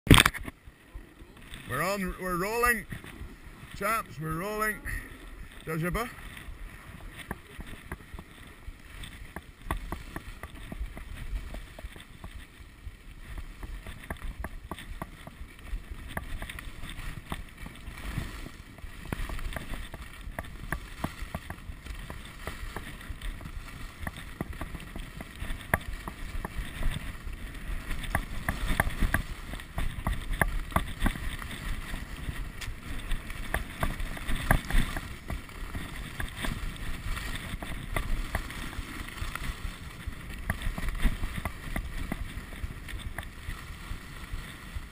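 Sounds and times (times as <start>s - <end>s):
skis scraping over snow: 0.1s - 44.9s
wind rumbling on microphone: 0.1s - 44.9s.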